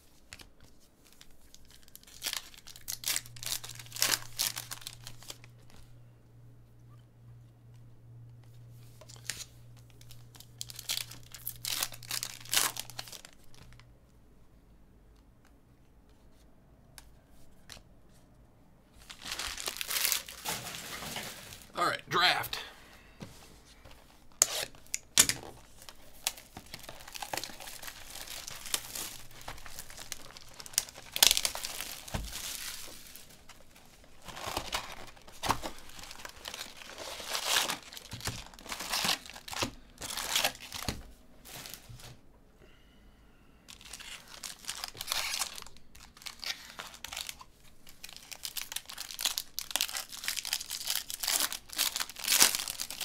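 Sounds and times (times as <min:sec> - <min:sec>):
foil pack crinkling and tearing: 0:00.3 - 0:05.8, 0:09.1 - 0:13.8, 0:19.0 - 0:21.7, 0:24.3 - 0:42.2, 0:43.7 - 0:53.0.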